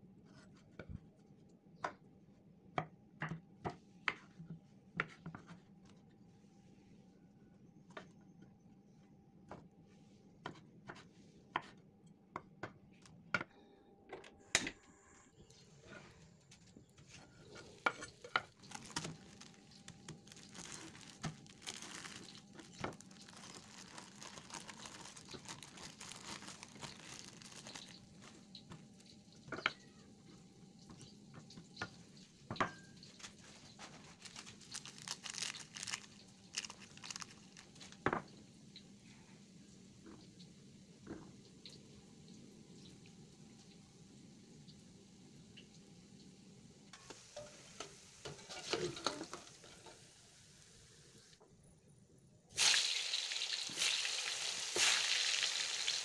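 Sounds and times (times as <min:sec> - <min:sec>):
plastic wrapping crinkling: 0:17.7 - 0:29.1, 0:33.1 - 0:38.2.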